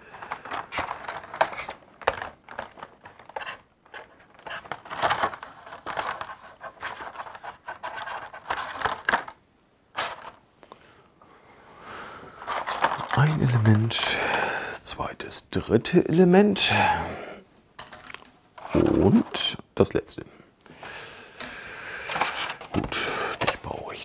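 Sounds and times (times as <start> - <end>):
plastic packaging crinkling: 0.0 - 10.4, 12.4 - 14.0.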